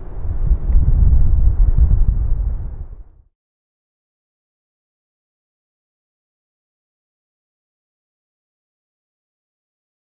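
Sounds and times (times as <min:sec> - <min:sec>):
wind buffeting a microphone: 0:00.0 - 0:03.3.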